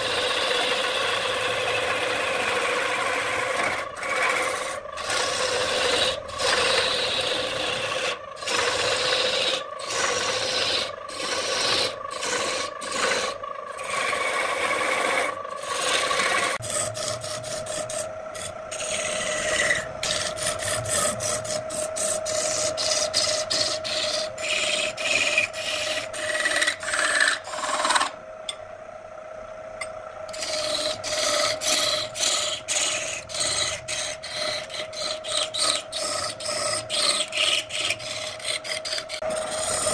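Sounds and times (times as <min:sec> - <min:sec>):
turning tool rasping on wood: 0:00.0 - 0:28.2, 0:30.3 - 0:39.9
lathe motor hum: 0:00.0 - 0:39.9.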